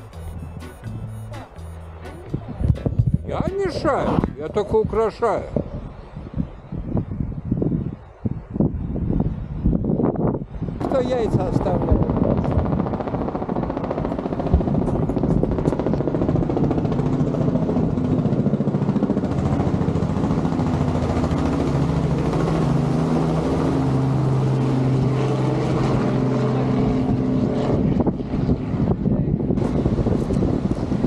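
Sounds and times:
vehicle engine running: 0:00.0 - 0:04.9.

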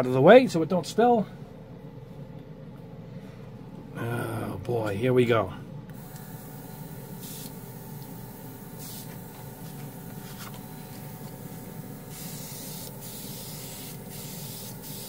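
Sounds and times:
compressor motor hum: 0:00.0 - 0:15.0
airbrush spraying hiss: 0:06.0 - 0:15.0.

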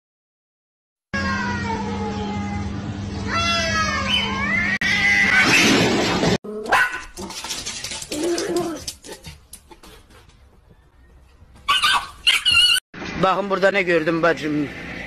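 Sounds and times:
cats yowling: 0:03.3 - 0:05.6.

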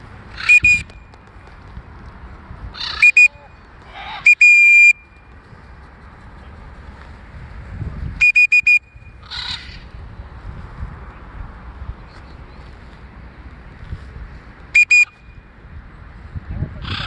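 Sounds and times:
short harsh squawks: 0:00.3 - 0:00.9, 0:02.8 - 0:04.9
whistle blasts: 0:00.4 - 0:01.1, 0:03.0 - 0:03.5, 0:04.2 - 0:05.2, 0:08.2 - 0:09.2, 0:14.7 - 0:15.4.

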